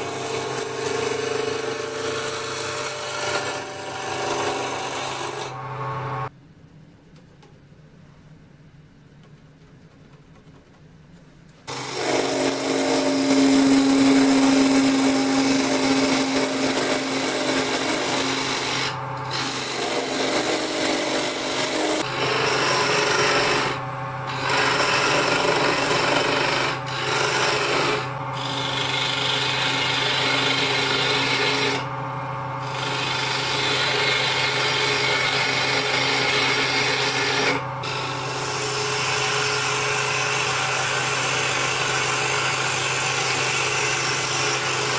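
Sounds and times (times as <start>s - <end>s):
gouge rasping on spinning wood: 11.7s - 31.8s, 32.6s - 39.4s
lathe motor hum: 11.7s - 38.5s.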